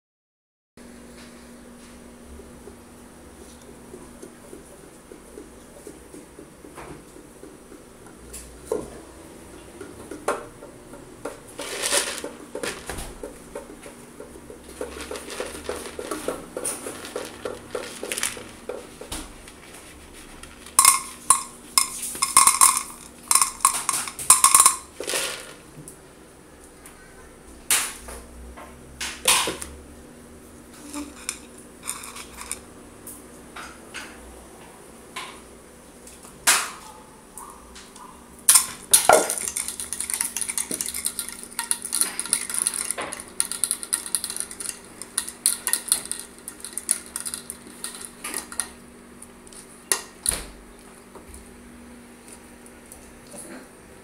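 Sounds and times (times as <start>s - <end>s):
spoon clinking and scraping dish: 20.8s - 25.3s, 30.8s - 32.6s, 38.6s - 48.8s.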